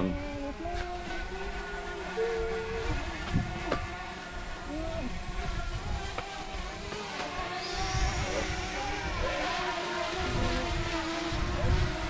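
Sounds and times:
drone propellers buzzing: 0.0s - 12.0s.

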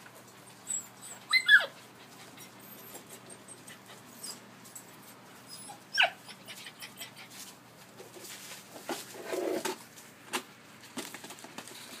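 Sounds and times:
puppy whine: 0.4s - 7.4s
puppy yelp: 0.5s - 4.4s, 5.1s - 7.4s.

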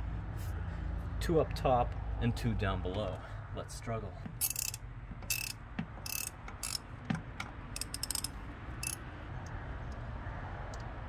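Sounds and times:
ratchet wrench clicking: 4.4s - 6.8s, 7.4s - 9.6s.

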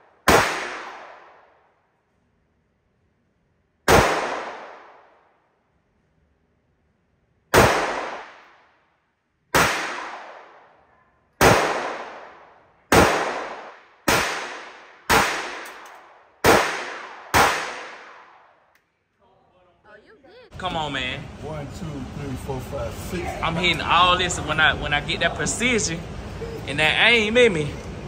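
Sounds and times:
gunshots with echo: 0.0s - 1.5s, 3.9s - 5.2s, 7.5s - 8.7s, 9.5s - 10.7s, 11.4s - 18.6s.

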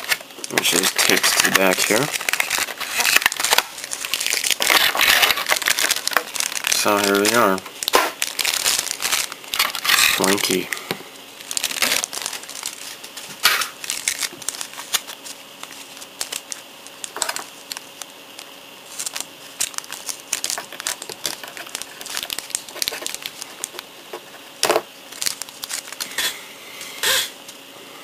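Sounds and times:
plastic bag crinkling: 0.0s - 26.2s.

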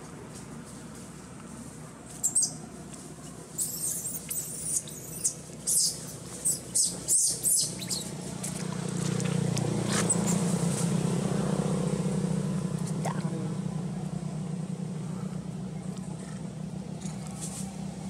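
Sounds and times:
monkey squealing: 3.6s - 8.2s, 10.0s - 10.4s
low steady drone: 6.2s - 18.0s.

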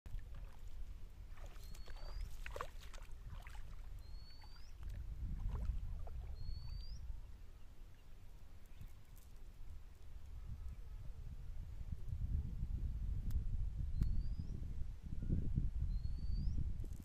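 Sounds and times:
shallow water sloshing: 0.1s - 7.0s
bird whistling: 4.0s - 4.8s, 6.4s - 7.0s.

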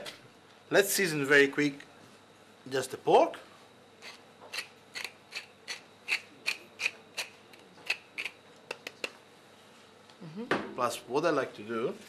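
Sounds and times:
pepper mill grinding crunch: 4.0s - 9.1s.

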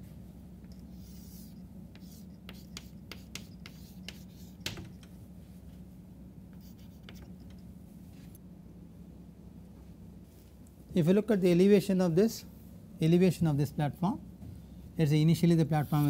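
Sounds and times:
chalk tapping and scratching on chalkboard: 0.7s - 5.2s, 6.6s - 7.6s.

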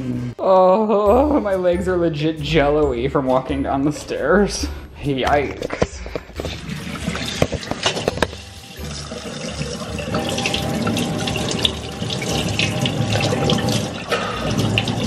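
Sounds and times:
faucet water splashing on head: 6.3s - 15.0s.

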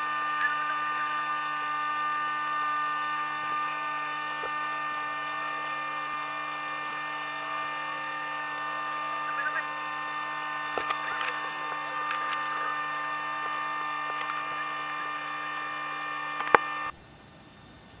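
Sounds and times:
steady hum with overtones: 0.0s - 18.0s
sharp click: 9.4s - 12.7s, 13.3s - 16.9s.

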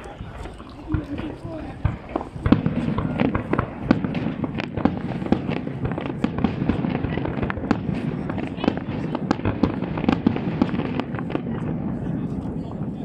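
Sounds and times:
fireworks bangs and crackles: 0.0s - 13.0s.

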